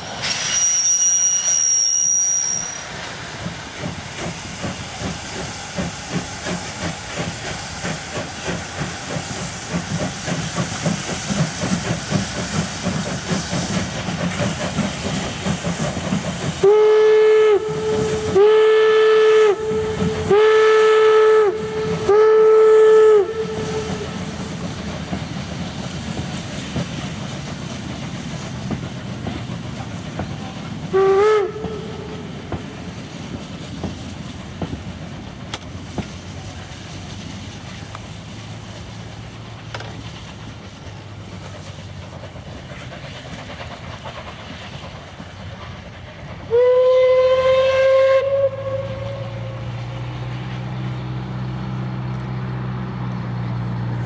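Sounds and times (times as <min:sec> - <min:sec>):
hissing steam: 0:00.0 - 0:54.0
steam locomotive exhaust beats: 0:00.0 - 0:54.0
steam whistle blasts: 0:00.2 - 0:03.0, 0:16.6 - 0:24.3, 0:30.9 - 0:32.2, 0:46.5 - 0:49.7.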